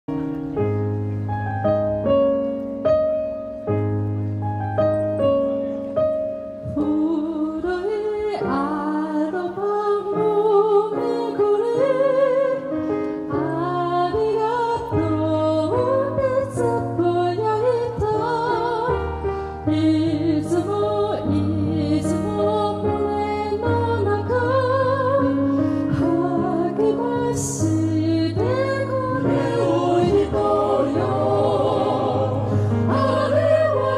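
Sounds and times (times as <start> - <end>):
piano chords: 0.1 - 33.9
vocal quartet singing classically: 19.7 - 33.9.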